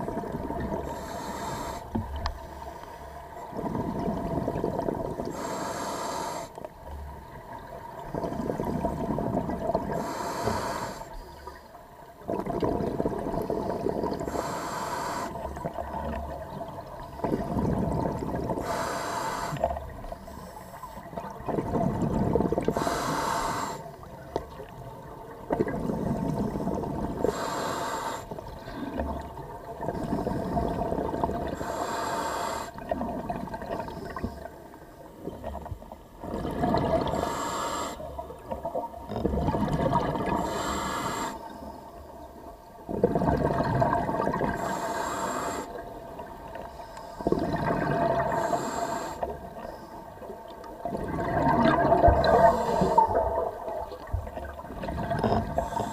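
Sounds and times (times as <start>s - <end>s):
inhaled air hissing through regulator: 0.9s - 2.0s, 5.3s - 6.6s, 9.9s - 11.2s, 14.3s - 15.5s, 18.6s - 19.7s, 22.7s - 24.0s, 27.2s - 28.4s, 31.6s - 32.8s, 37.1s - 38.1s, 40.4s - 41.6s, 44.6s - 45.8s, 48.3s - 49.8s, 52.2s - 53.2s, 55.6s - 55.9s
exhaled bubbles rushing: 3.5s - 5.3s, 7.9s - 10.0s, 12.2s - 14.3s, 15.6s - 18.6s, 21.1s - 22.8s, 24.5s - 27.3s, 28.5s - 31.6s, 35.2s - 37.2s, 38.4s - 40.4s, 42.9s - 44.6s, 47.2s - 48.5s, 50.4s - 55.9s.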